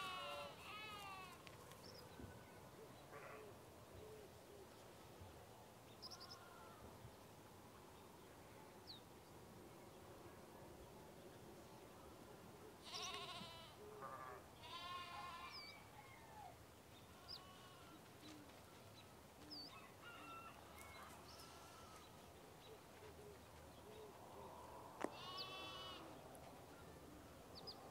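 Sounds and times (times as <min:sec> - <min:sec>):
livestock bleating: 0:00.0 - 0:01.4, 0:06.2 - 0:06.8, 0:12.8 - 0:15.7, 0:17.1 - 0:18.0, 0:21.3 - 0:22.1, 0:25.0 - 0:26.1.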